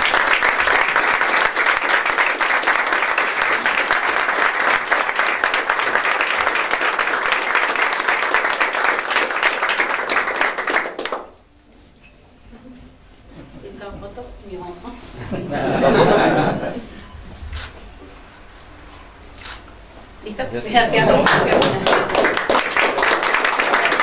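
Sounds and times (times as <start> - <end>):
audience applauding: 0.0 - 11.4, 20.9 - 24.0.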